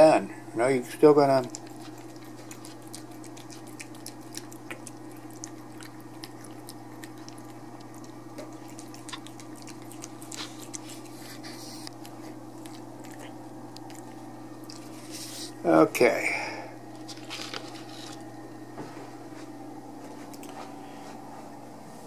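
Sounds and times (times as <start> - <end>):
steady low hum: 0.0 - 22.0
cat chewing wet food: 1.2 - 15.6.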